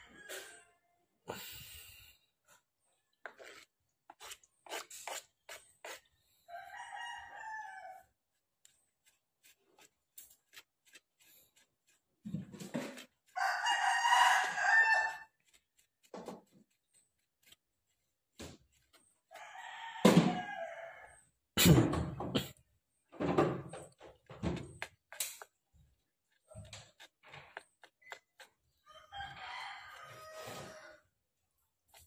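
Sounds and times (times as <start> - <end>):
rooster crowing: 0.0 - 0.8, 6.5 - 8.1, 13.4 - 15.3, 19.3 - 21.2, 28.8 - 31.0.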